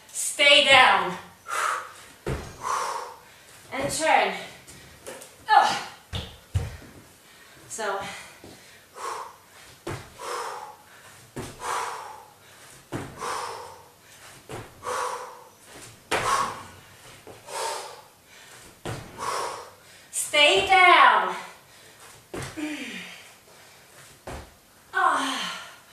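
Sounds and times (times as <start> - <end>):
hard breathy exhale: 1.5 - 3.4, 10.2 - 13.9, 14.8 - 15.5, 17.4 - 18.1, 19.1 - 20.0
thud of feet on exercise mat: 2.0 - 3.0, 3.6 - 7.1, 9.6 - 17.8, 18.5 - 19.5, 22.0 - 22.7, 24.0 - 24.6.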